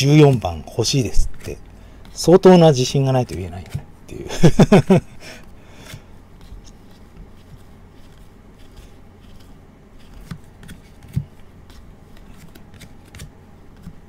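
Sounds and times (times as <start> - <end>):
low steady hum: 0.0 - 14.0
cards clicking and scraping: 5.8 - 14.0.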